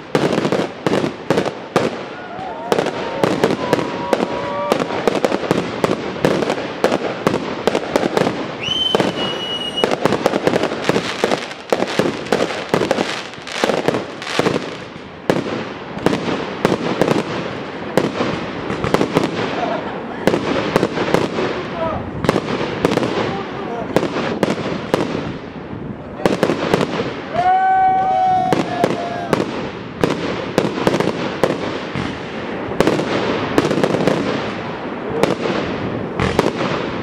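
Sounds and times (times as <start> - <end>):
fireworks bangs and crackles: 0.0 - 37.0
high firework whistle: 8.5 - 10.2.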